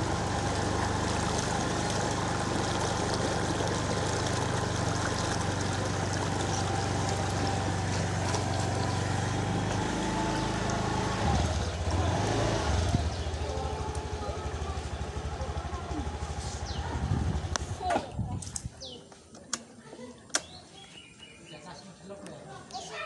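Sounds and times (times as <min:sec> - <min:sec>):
tyres splashing through water: 0:00.0 - 0:16.7
motorcycle engine running: 0:00.0 - 0:17.9.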